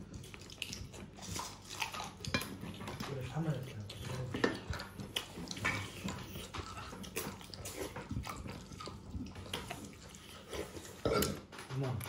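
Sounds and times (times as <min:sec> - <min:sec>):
wet squelching of eating: 0:00.0 - 0:12.0
dishes clinking: 0:11.0 - 0:11.8.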